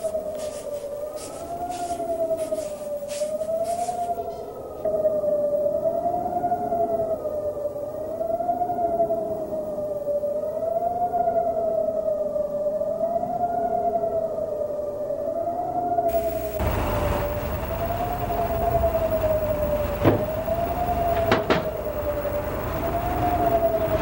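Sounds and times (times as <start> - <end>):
siren-like rising and falling tone: 16.1 - 24.0.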